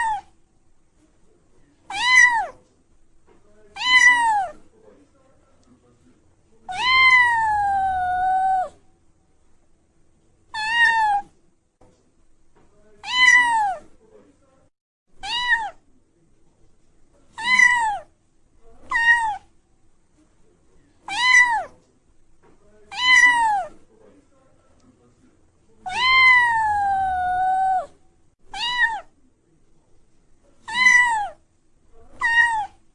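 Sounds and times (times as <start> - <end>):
cat meowing: 0.0 - 0.3, 1.9 - 2.6, 3.7 - 4.6, 6.7 - 8.8, 10.5 - 11.3, 13.0 - 13.8, 15.2 - 15.8, 17.4 - 18.1, 18.8 - 19.5, 21.1 - 21.7, 22.9 - 23.8, 25.8 - 29.1, 30.6 - 31.4, 32.1 - 32.8.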